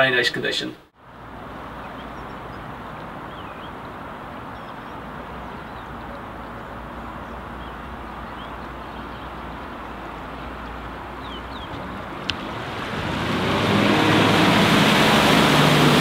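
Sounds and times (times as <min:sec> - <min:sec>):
faint bird chirps: 0:01.8 - 0:09.4.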